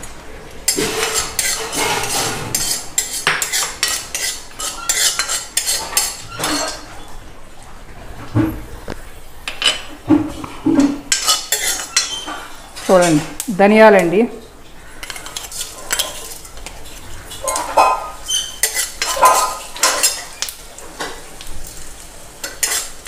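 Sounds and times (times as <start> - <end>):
metal spoon scraping a pan: 0.6 - 7.0, 9.4 - 13.4, 14.8 - 21.8, 22.4 - 23.0.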